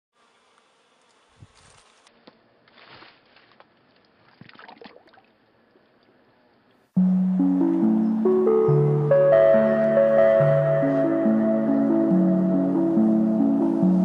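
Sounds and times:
water clicks and light splashes: 3.6 - 6.8.

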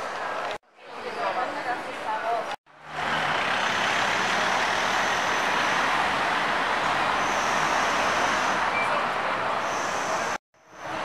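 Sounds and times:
hiss of passing cars: 2.8 - 11.0.

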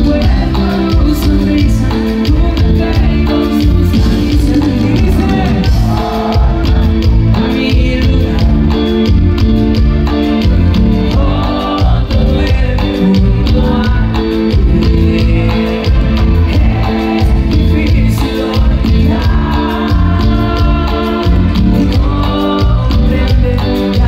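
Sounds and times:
man singing: 0.0 - 9.4, 10.9 - 24.0
live band music: 0.0 - 24.0.

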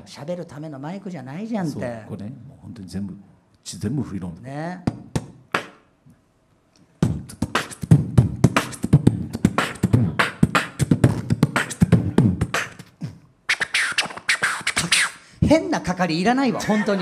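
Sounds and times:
beatboxing into a microphone: 4.8 - 6.0, 6.8 - 15.6.

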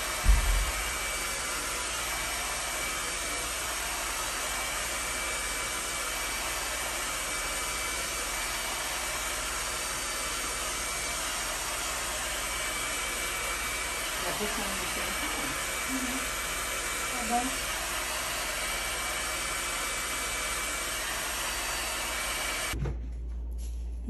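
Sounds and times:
hair dryer running: 0.0 - 22.8.

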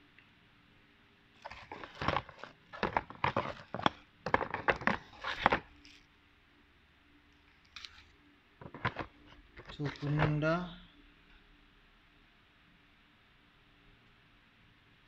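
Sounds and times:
objects moved on a desk: 1.4 - 6.0, 8.6 - 10.4.

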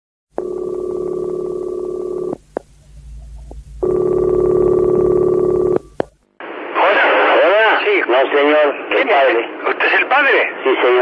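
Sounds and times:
telephone ringing tone: 0.4 - 2.4, 3.8 - 6.1.

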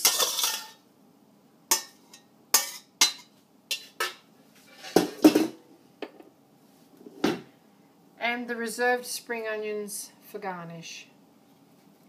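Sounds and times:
metal spoon clinking on a pan: 0.0 - 0.8, 1.7 - 4.2.

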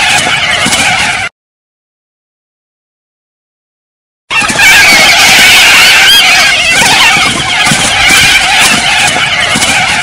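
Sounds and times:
chorus of warbling animal calls: 0.0 - 1.3, 4.3 - 10.0.

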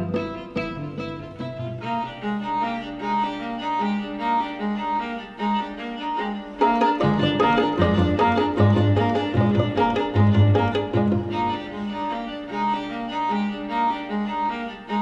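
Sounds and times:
string quartet music: 0.0 - 15.0.

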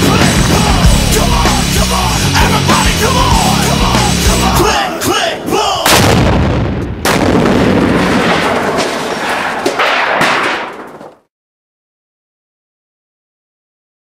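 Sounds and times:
loud rumble: 0.0 - 4.5
explosion blasts: 5.9 - 11.1.

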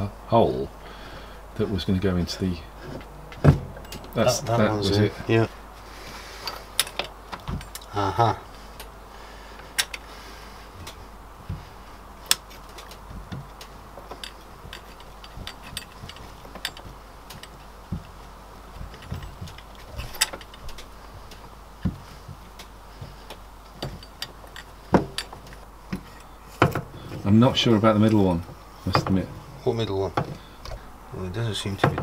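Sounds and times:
metal engine parts clicking and knocking: 6.4 - 7.9, 9.6 - 10.1, 10.8 - 29.3, 31.6 - 32.0.

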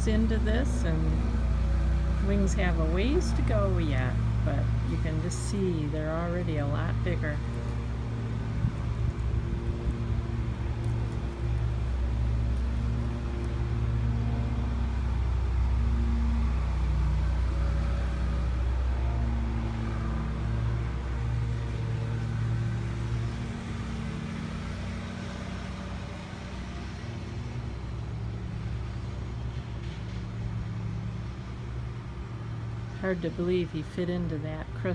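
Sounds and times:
low motor rumble: 0.0 - 34.9.

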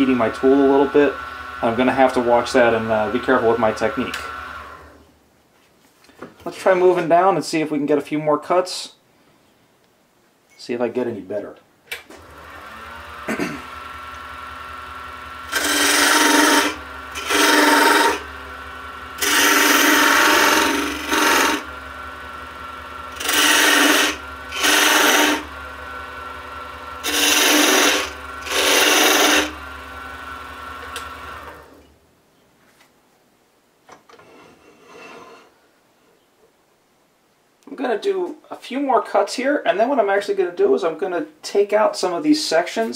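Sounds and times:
tool scraping spinning wood: 0.0 - 4.9, 12.2 - 31.8
wood lathe humming: 0.0 - 5.0, 12.2 - 31.8.

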